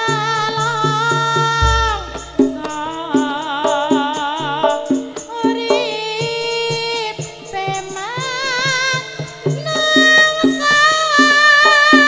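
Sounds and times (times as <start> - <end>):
gamelan ensemble: 1.6 - 2.9
low drum strokes: 1.6 - 3.2
metallophone strikes: 1.6 - 3.2.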